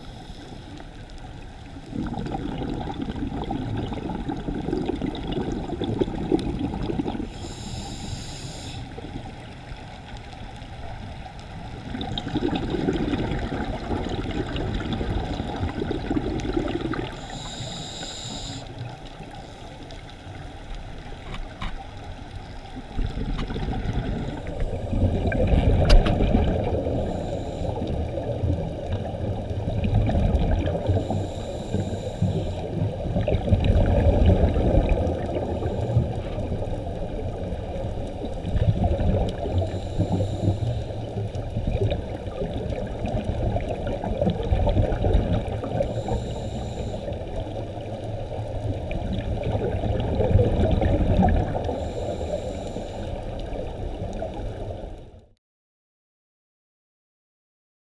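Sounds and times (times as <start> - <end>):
regulator hissing inhalations: 0.0 - 0.8, 7.3 - 9.0, 17.1 - 19.8, 26.9 - 28.0, 30.9 - 32.8, 39.6 - 41.2, 45.9 - 47.3, 51.6 - 53.3
bubbling exhalations: 1.9 - 7.8, 11.9 - 17.6, 23.0 - 31.3, 48.8 - 51.9.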